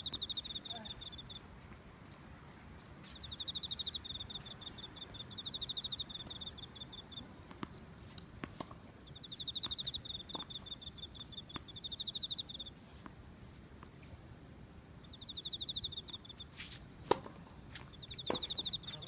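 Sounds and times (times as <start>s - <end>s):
crickets trilling: 0.0s - 1.4s, 3.1s - 7.3s, 9.0s - 12.7s, 15.0s - 16.6s, 17.9s - 19.0s
tennis balls being hit: 17.0s - 17.4s, 18.2s - 18.6s.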